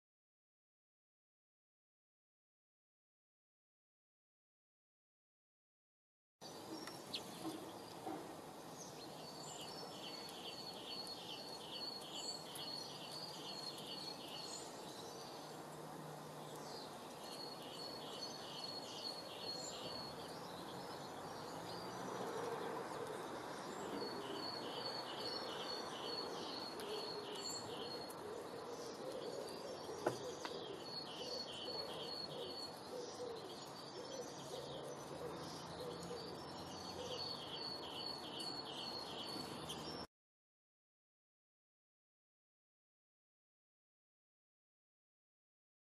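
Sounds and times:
songbird singing: 0:06.4 - 0:40.1.

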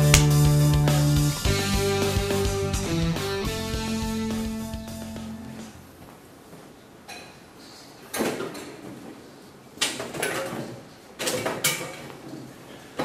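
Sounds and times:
guitar music: 0:00.0 - 0:05.8.

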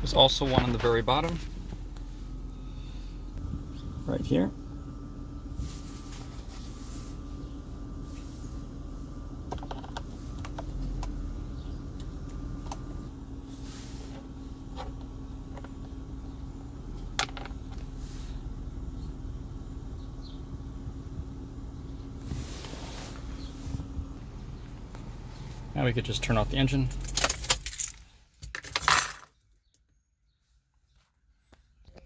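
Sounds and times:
car engine idling: 0:00.0 - 0:28.1.

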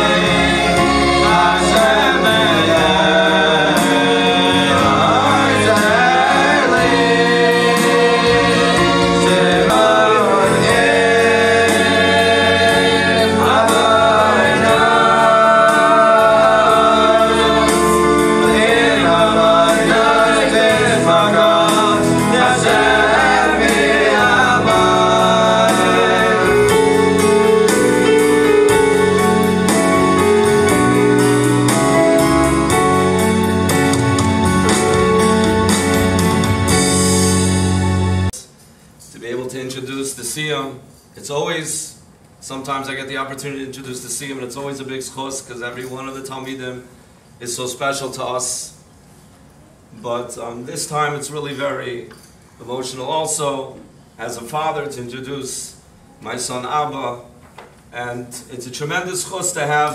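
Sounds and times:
young male voices singing in harmony: 0:00.0 - 0:29.8
electronic keyboard with bass line: 0:00.0 - 0:38.4.

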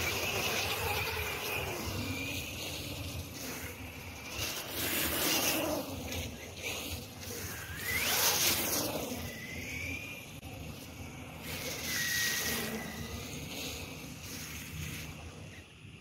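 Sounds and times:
electric motor whining: 0:00.0 - 0:10.6.

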